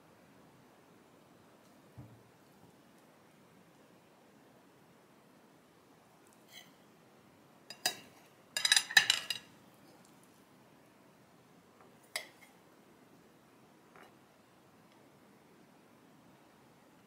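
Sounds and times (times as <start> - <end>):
metal spoon clinking on dishes: 7.7 - 9.5.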